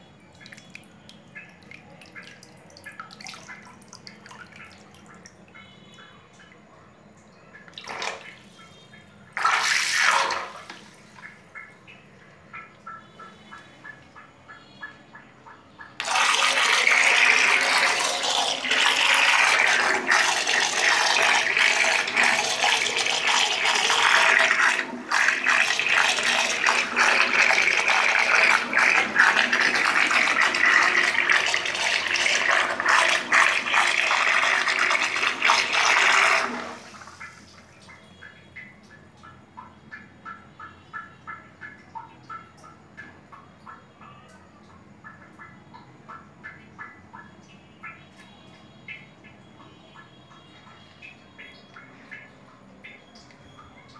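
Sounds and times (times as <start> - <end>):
water churning and splashing: 0.2 - 6.0, 9.2 - 11.7, 16.0 - 38.2.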